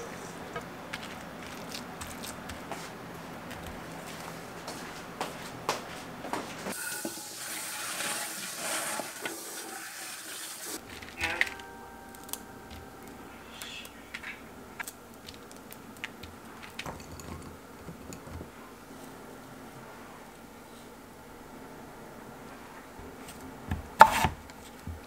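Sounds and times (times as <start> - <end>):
granola cracking apart: 0.9 - 2.8, 14.8 - 16.9.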